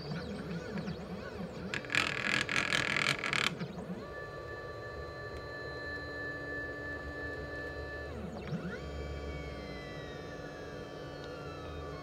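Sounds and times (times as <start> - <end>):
stepper motors whining: 0.6 - 3.7
stepper motors whirring: 1.7 - 3.6.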